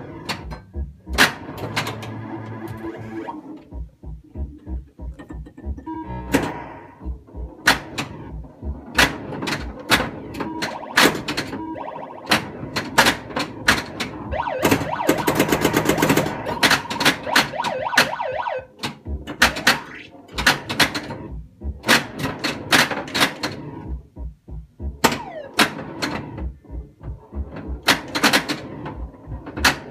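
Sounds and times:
electronic sound effects: 10.2s - 13.1s, 14.2s - 18.7s.

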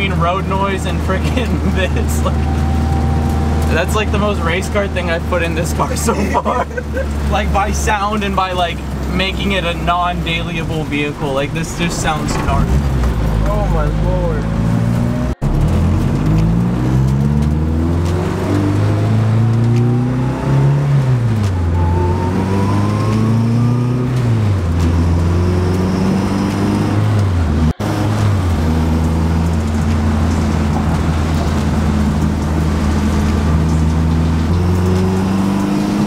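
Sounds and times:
car engine revving: 0.0s - 36.0s
transmission whine: 1.9s - 6.7s.

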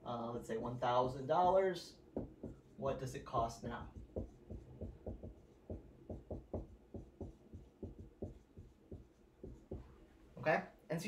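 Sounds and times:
marker writing on a whiteboard: 2.1s - 10.3s.

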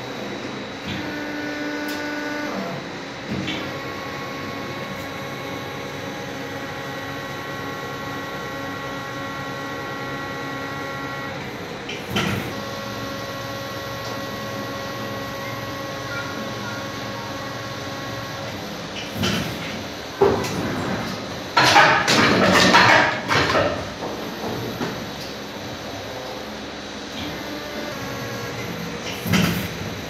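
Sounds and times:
machine humming and whining: 0.0s - 30.0s
loud machine clunk: 11.8s - 12.6s, 18.5s - 25.4s, 28.6s - 30.0s.

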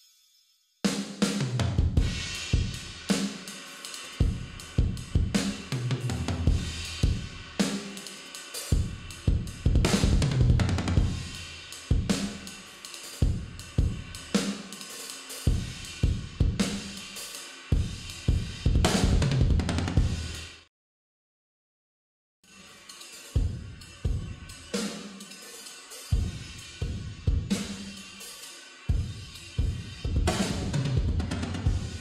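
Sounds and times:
drum kit groove: 0.9s - 20.7s, 22.5s - 32.0s
cymbal crashes: 2.0s - 10.3s, 11.0s - 19.1s.

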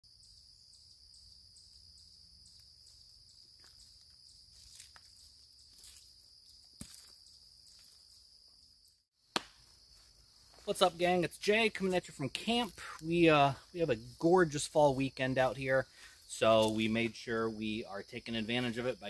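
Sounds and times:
insects chirring: 0.1s - 19.0s
footsteps on dry leaves: 3.6s - 8.0s.

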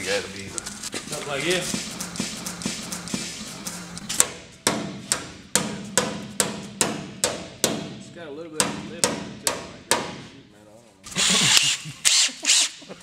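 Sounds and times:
hammer striking sheet steel: 1.2s - 8.0s, 8.6s - 10.3s.

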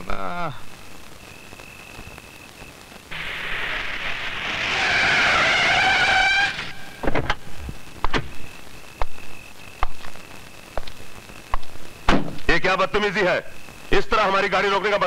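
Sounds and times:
crickets chirping: 0.0s - 15.0s
car tyres screeching: 3.1s - 7.5s.

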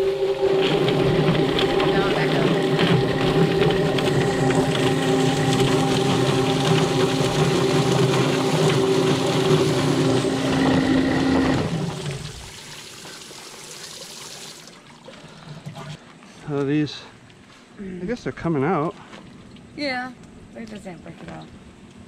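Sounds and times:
chicken plucker drum spinning: 0.0s - 12.5s
motor hum: 0.0s - 13.0s
hose spraying water: 0.0s - 14.8s.

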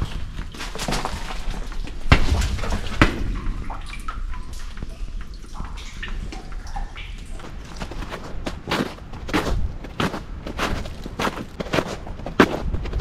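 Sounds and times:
footsteps crunching on trail: 7.4s - 13.0s.

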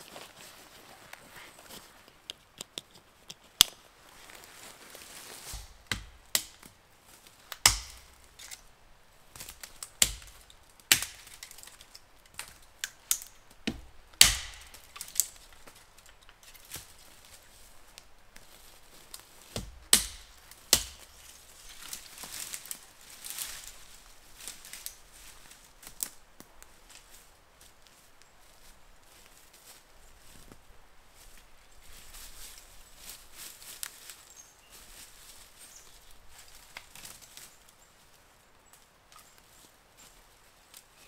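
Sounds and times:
dry branches cracking: 2.0s - 8.7s, 9.3s - 27.2s, 31.2s - 37.8s.

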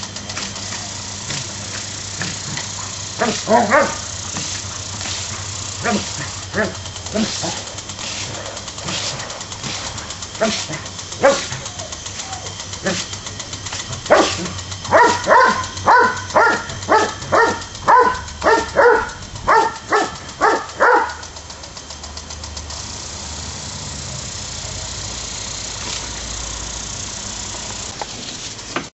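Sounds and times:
sprinkler water spray hissing: 0.0s - 28.9s
dog barking: 3.2s - 4.1s, 5.8s - 7.6s, 10.4s - 11.7s, 14.0s - 21.3s.

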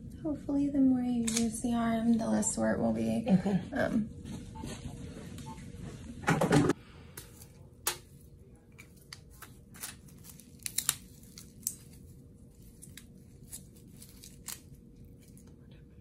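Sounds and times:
wrappers crinkling: 8.8s - 15.5s.

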